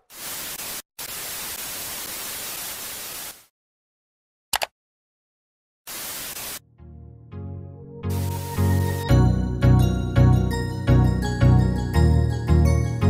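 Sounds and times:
static hiss: 0.0 - 3.5, 5.9 - 6.6, 8.1 - 9.0.

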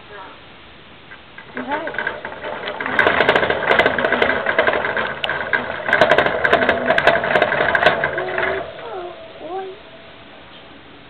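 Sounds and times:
hamster wheel clattering: 1.4 - 10.0.

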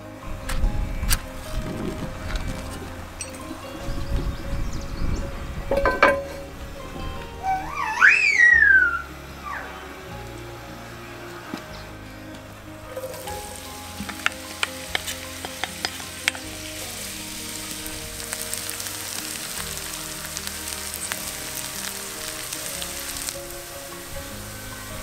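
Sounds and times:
onions sizzling in oil: 13.0 - 25.0.

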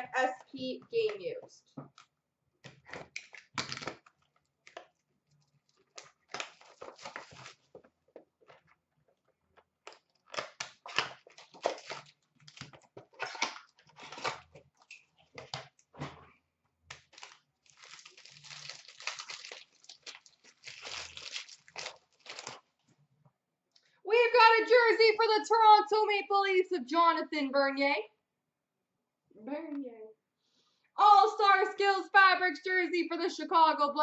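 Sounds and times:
packs being torn open: 3.1 - 7.9, 9.8 - 15.9, 16.9 - 22.7
wrapper crinkling and rustling: 3.2 - 15.8, 16.9 - 22.8.

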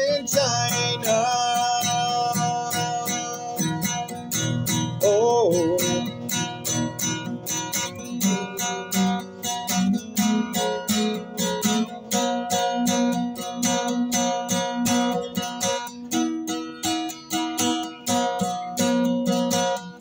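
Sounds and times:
acoustic guitar strumming: 0.0 - 20.0.

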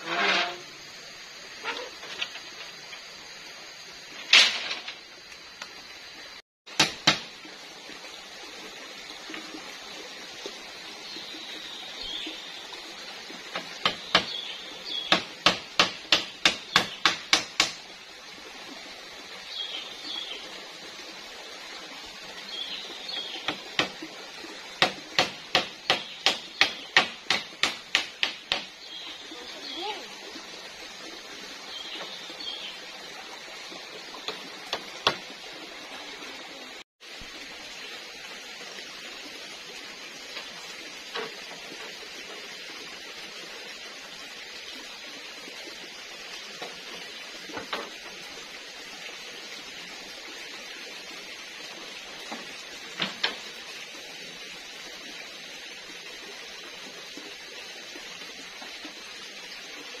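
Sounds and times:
forest ambience hiss: 0.0 - 60.0
sharp knocks: 15.1 - 17.8, 24.8 - 28.8.

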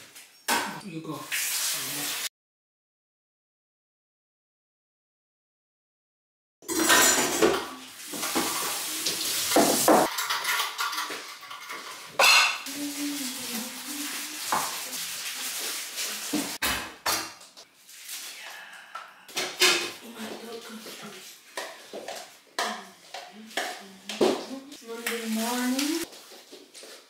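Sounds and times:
kitchenware knocking and clinking: 6.6 - 8.7, 9.5 - 12.7, 19.4 - 20.0.

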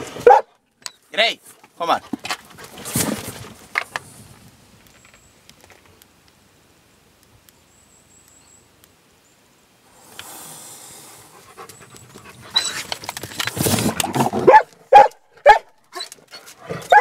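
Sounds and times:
dog barking loudly: 0.2 - 0.6, 14.1 - 16.1, 16.7 - 17.0
dog breathing hard: 10.2 - 14.5
scuffling among rocks: 12.4 - 14.8.

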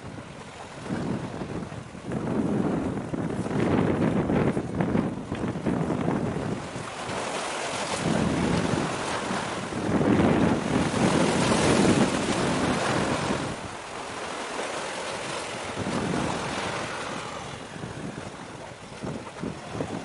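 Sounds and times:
wind gusting on microphone: 0.0 - 20.0.

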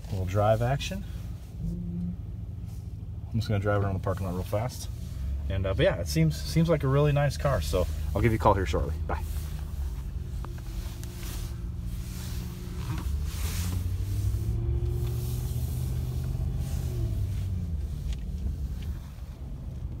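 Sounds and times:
pickup engine running at low revs: 0.0 - 20.0
phone rubbing against clothing: 9.0 - 15.6.

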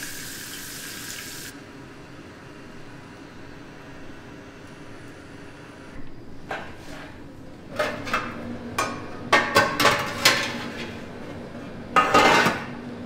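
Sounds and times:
metal tray clattering on rack: 7.7 - 10.8, 12.0 - 12.8.

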